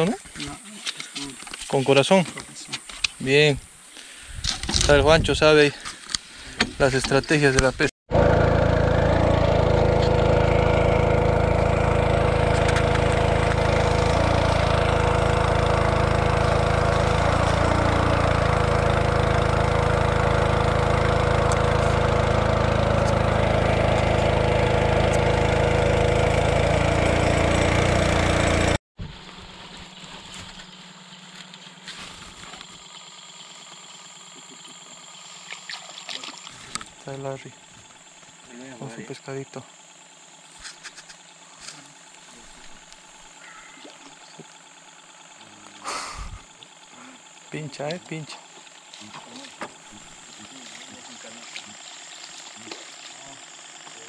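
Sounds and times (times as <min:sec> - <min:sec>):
boat motor running: 0:06.4 - 0:54.0
rushing water: 0:50.3 - 0:53.3.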